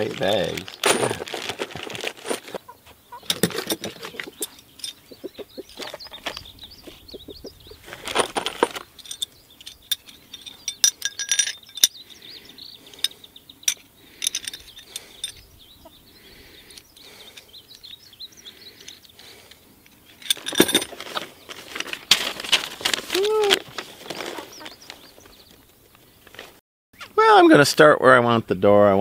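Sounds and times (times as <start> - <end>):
rustling: 0.0 - 11.9, 18.8 - 26.6
metal clamps clinking: 3.2 - 5.1, 8.1 - 12.0, 12.9 - 15.5, 20.2 - 21.0.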